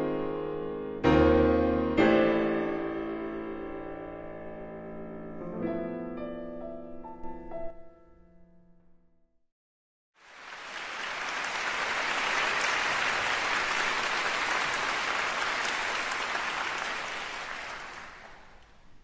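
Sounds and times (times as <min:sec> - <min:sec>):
audience applauding: 0:10.2 - 0:19.0.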